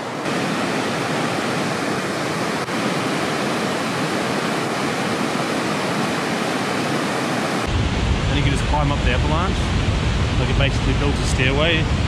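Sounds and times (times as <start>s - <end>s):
stream rushing over rocks: 0.0s - 7.7s.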